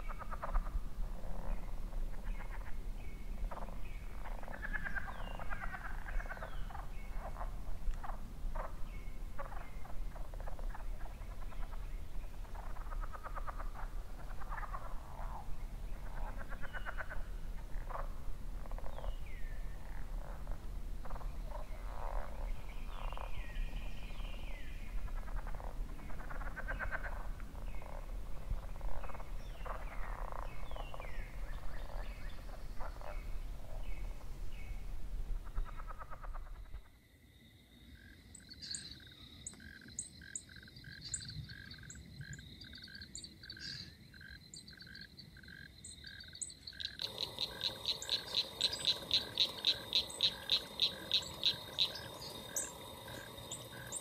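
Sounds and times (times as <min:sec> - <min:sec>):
frogs calling: 0:00.0 - 0:34.8, 0:35.4 - 0:54.0
crickets chirping: 0:00.1 - 0:54.0.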